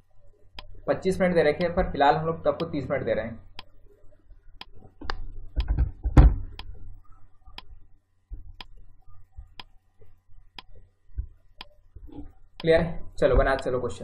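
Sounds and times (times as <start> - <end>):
clock ticking: 1.6 - 2.8, 12.6 - 13.8.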